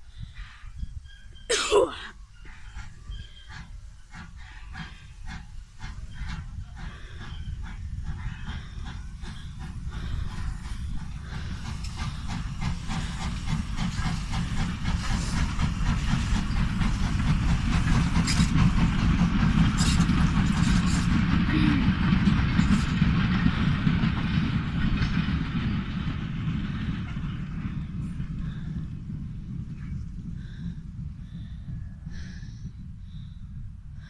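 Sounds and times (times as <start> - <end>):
steam locomotive exhaust beats: 0.0 - 34.0
steam hiss: 2.7 - 24.9
wagons clattering over rail joints: 11.7 - 27.8.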